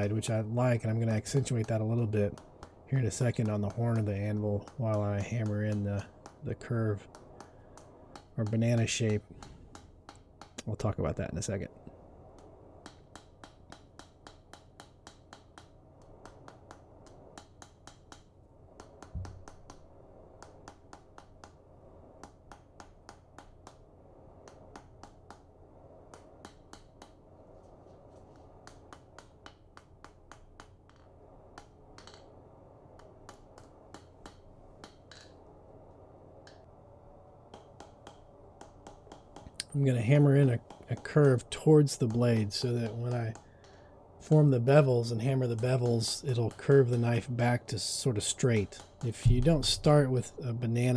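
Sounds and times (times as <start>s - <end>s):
dull thump: 49.2s - 49.9s.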